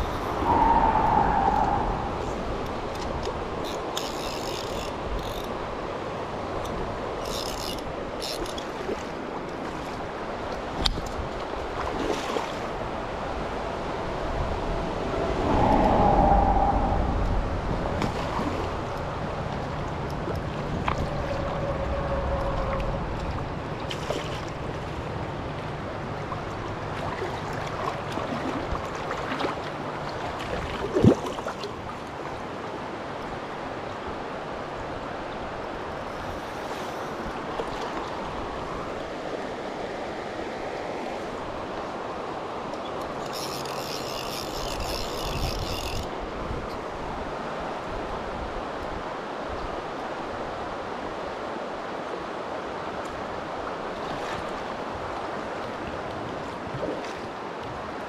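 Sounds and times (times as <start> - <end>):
fly reel clicking: 3.6 - 5.6, 7.2 - 8.7, 43.0 - 46.2
low rumble: 14.2 - 18.1, 20.7 - 23.8.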